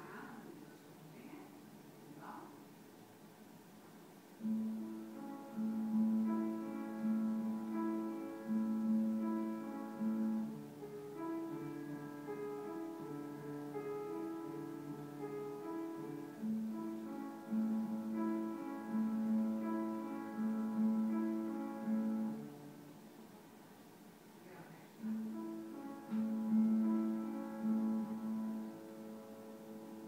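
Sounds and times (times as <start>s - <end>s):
calm keyboard music: 4.4s - 23.0s, 25.0s - 30.0s.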